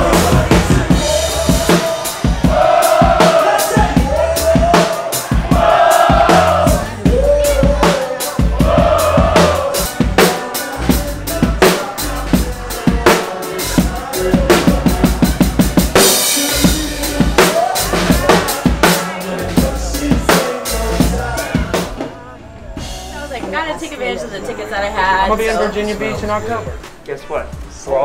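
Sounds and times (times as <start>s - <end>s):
live band playing: 0.0s - 22.2s
person singing: 0.0s - 22.3s.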